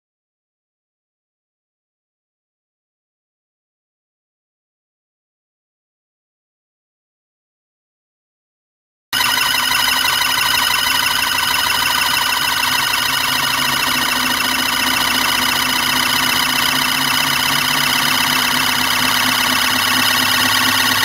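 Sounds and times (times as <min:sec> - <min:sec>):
low hum: 0:09.2 - 0:21.0
pulse motor buzzing whine: 0:09.2 - 0:21.0.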